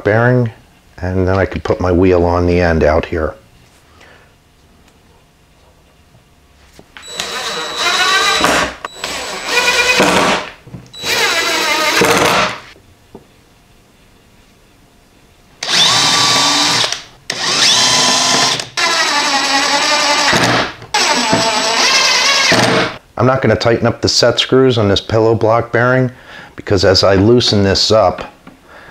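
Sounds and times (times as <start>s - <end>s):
cordless drill driving screws: 7.0s - 12.7s, 15.6s - 23.0s.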